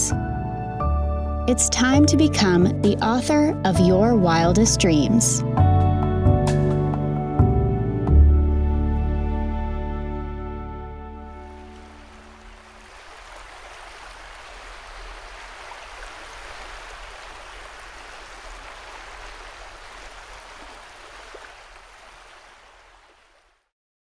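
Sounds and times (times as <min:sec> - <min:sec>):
sea waves washing: 0:11.3 - 0:23.5.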